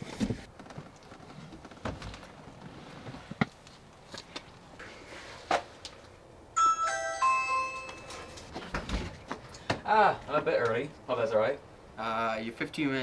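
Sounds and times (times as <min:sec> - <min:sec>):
doorbell chime tune: 0:06.6 - 0:08.6.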